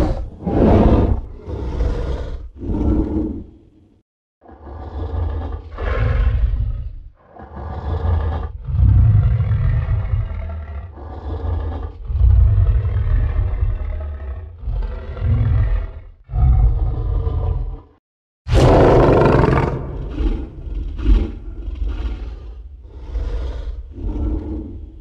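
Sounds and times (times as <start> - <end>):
giant ape roars and growls: 0.0 - 25.0.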